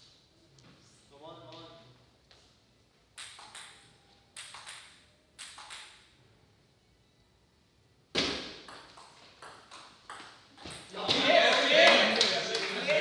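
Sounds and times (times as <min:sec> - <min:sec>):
table tennis ball bouncing: 0:03.2 - 0:06.1, 0:08.2 - 0:11.3.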